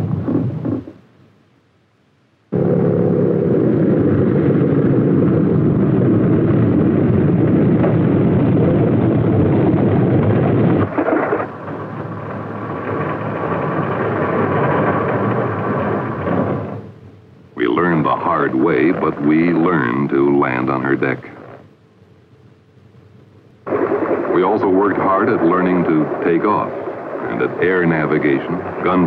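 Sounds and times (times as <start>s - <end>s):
thin whining engine: 2.5s - 17.0s
piston engine rumbling: 2.5s - 22.1s.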